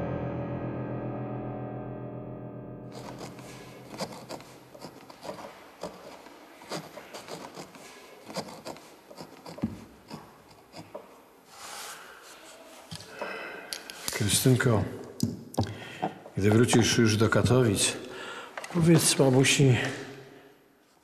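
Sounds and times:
pen scratching on paper: 2.9 - 11.2
hand rubbing paper: 2.9 - 12.9.

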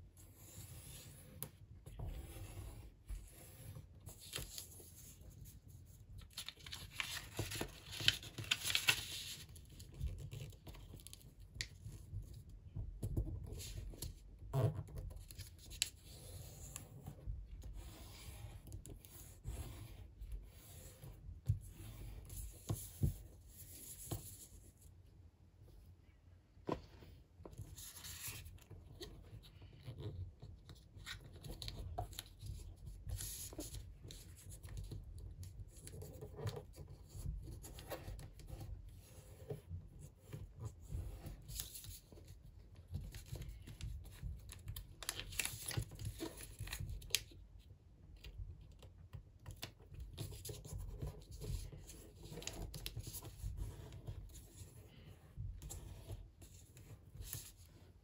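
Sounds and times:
paper rustling while folding: 3.3 - 12.1, 27.7 - 29.8, 40.0 - 47.3.

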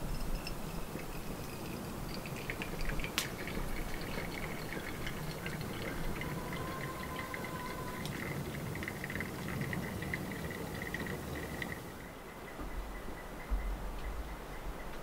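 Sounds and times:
water trickling and dripping: 0.0 - 12.0
water pouring onto coffee grounds: 0.1 - 11.9.

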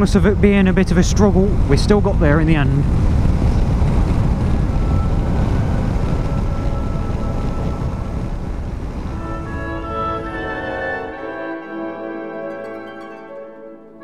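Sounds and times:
motorcycle wind and road rumble: 0.0 - 9.8
faint music: 3.6 - 14.0.

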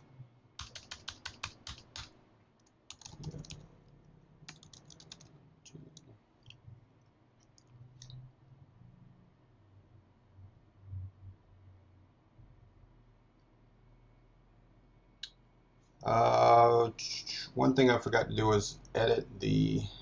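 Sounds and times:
computer keyboard typing: 0.6 - 3.7, 4.5 - 6.6.

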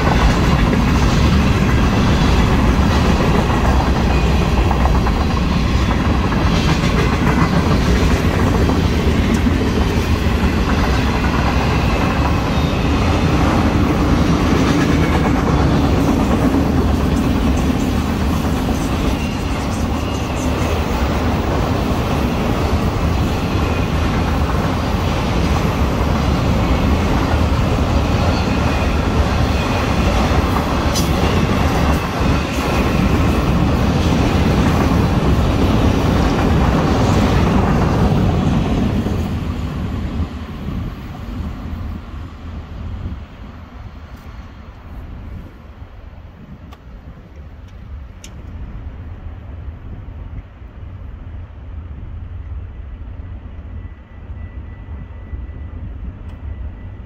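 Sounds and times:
rail clacking: 0.0 - 41.6
freight train wheels rumbling: 0.0 - 57.0.

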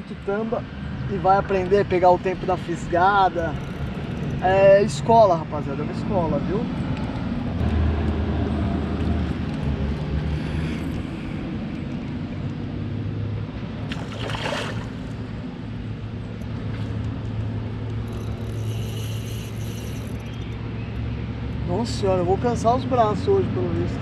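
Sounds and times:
steady low hum: 0.0 - 21.8
fish splashing at water surface: 13.8 - 15.2.

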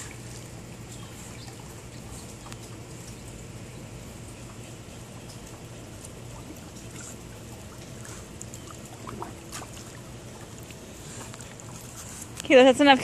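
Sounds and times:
steady low hum: 0.0 - 13.0
water lapping and splashing: 0.0 - 13.0.

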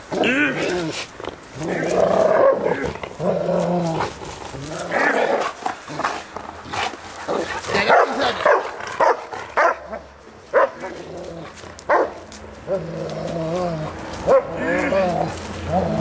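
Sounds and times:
dog play-barking: 7.3 - 11.0, 11.9 - 12.2.

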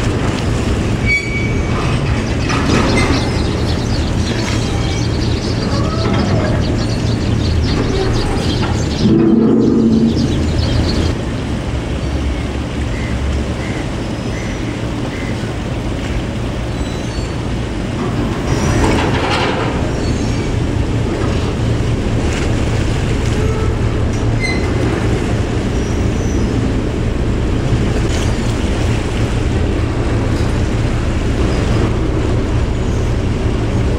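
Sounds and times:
ferry engines rumbling: 0.0 - 33.9
rushing swell: 3.4 - 11.2.

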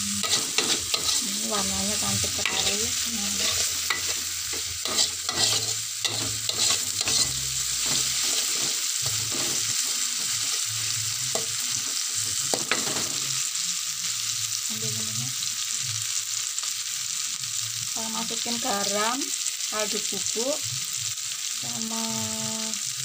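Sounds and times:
food sizzling in a wok: 0.0 - 23.0
metal utensil scraping a pan: 0.1 - 10.6.

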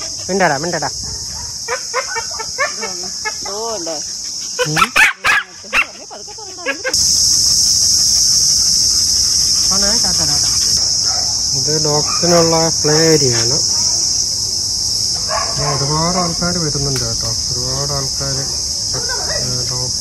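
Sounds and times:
insects chirping: 0.0 - 20.0
dogs barking and whining: 1.1 - 3.0, 4.3 - 7.0, 12.0 - 12.5, 13.7 - 14.1, 15.2 - 15.9.

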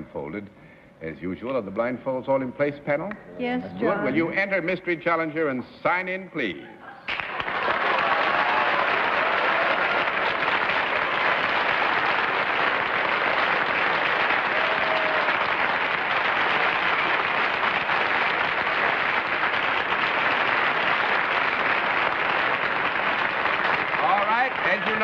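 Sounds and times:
audience applauding: 7.1 - 25.0.

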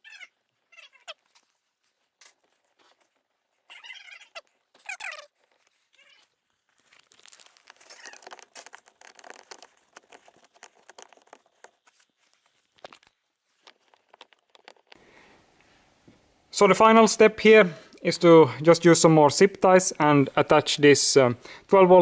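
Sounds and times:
gloves rustling against wiring: 0.0 - 16.4
small plastic clicks and knocks: 12.8 - 15.0.

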